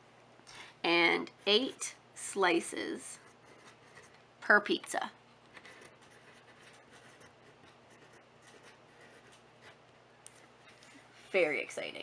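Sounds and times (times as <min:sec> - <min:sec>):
pencil scratching on paper: 0:03.1 - 0:04.2, 0:05.5 - 0:10.6.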